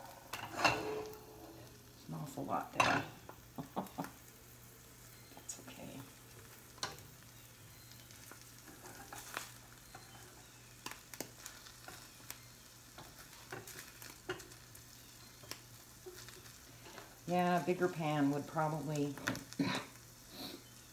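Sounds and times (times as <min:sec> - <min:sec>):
tongs scraping a pan: 0:00.0 - 0:01.8, 0:06.6 - 0:17.9
sandwich frying in a skillet: 0:00.0 - 0:20.9.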